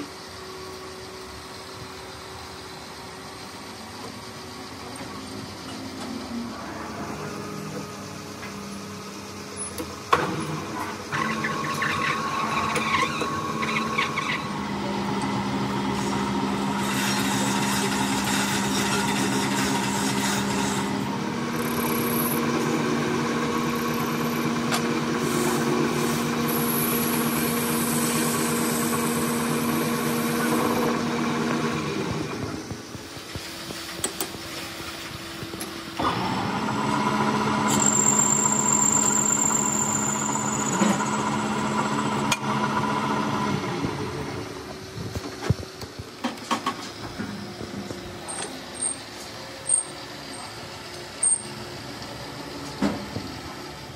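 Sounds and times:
lathe motor humming: 11.0 - 33.1, 35.2 - 44.9
hiss from cutting metal: 25.2 - 26.4.

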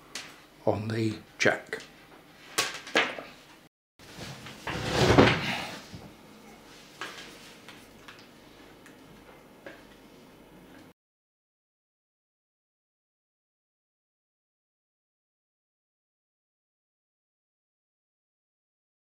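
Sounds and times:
scraping rustle: 4.1 - 5.8.

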